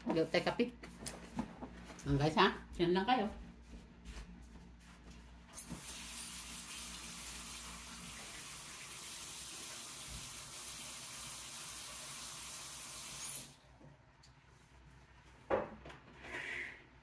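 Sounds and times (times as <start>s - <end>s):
kitchen tap running: 5.6s - 13.6s.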